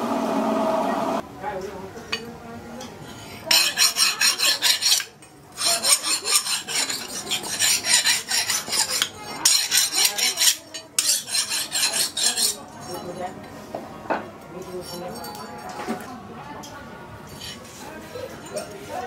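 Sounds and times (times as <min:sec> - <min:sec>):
file rasping on steel blade: 0:03.2 - 0:12.6.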